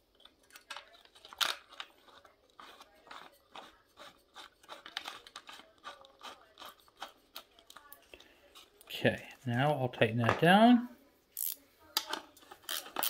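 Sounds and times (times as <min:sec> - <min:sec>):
bolt clicks and scrapes on metal: 0:00.1 - 0:08.9, 0:11.4 - 0:13.0.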